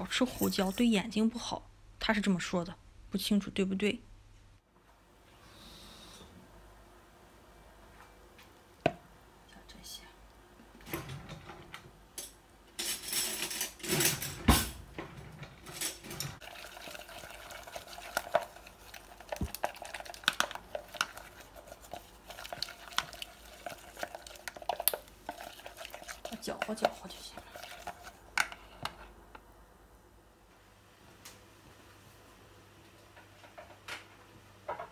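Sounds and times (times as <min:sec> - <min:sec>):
water pouring into bowl: 0:16.4 - 0:28.1
metal utensil stirring batter: 0:16.4 - 0:29.0.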